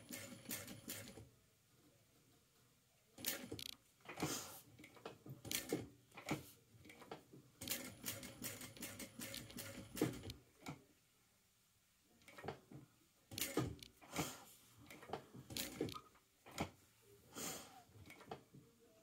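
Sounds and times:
sewing machine stitching: 0.0 - 1.2, 3.2 - 4.4, 5.4 - 10.4, 13.3 - 16.7.

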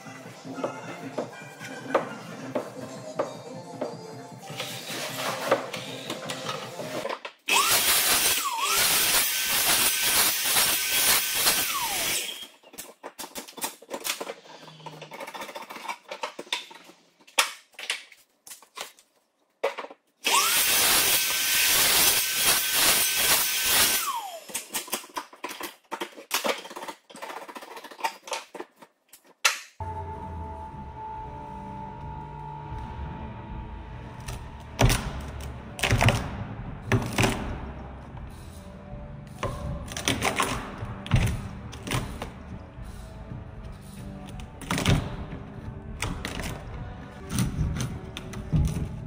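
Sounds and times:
miter saw cutting board: 7.5 - 12.5, 20.3 - 24.5.

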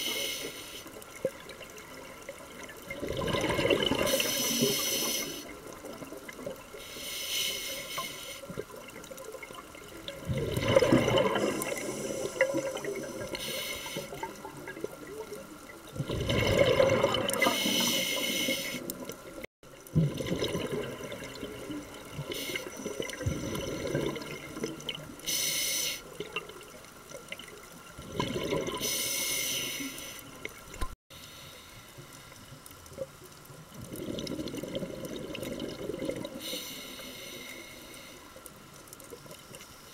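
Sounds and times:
regulator hiss on inhale: 0.0 - 1.1, 4.0 - 5.7, 6.7 - 8.6, 11.4 - 14.5, 17.4 - 19.0, 22.2 - 24.1, 25.2 - 26.2, 28.8 - 30.5, 31.1 - 32.7, 36.3 - 38.8
exhaled bubbles underwater: 1.1 - 6.8, 8.5 - 25.3, 26.1 - 29.0, 32.9 - 36.6.

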